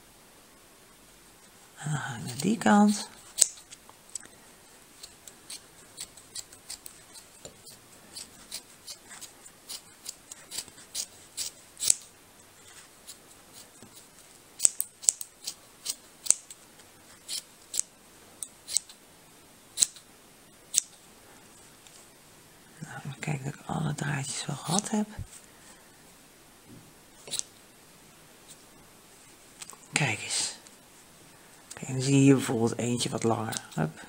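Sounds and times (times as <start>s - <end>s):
scissors snipping yarn: 2.3s - 4.2s, 5.0s - 12.1s, 14.6s - 16.6s, 19.8s - 20.0s.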